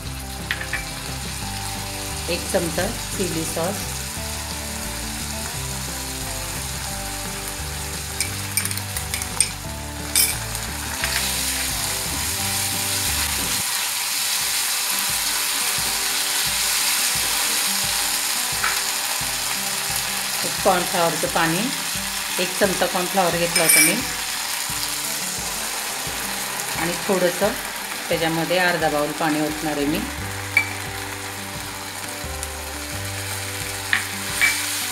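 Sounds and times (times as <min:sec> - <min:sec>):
vegetables sizzling in a pan: 0:00.0 - 0:34.9.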